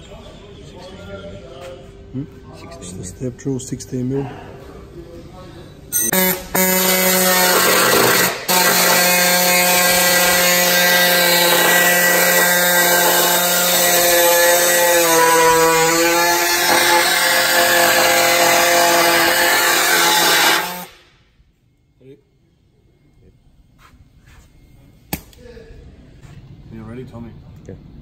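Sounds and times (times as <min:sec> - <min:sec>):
pneumatic saw cutting metal: 0:06.0 - 0:21.0.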